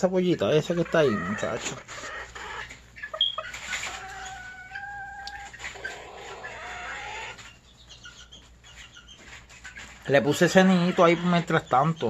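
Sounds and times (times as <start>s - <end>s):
chickens clucking: 0.0s - 12.0s
long chicken calls: 0.8s - 7.5s.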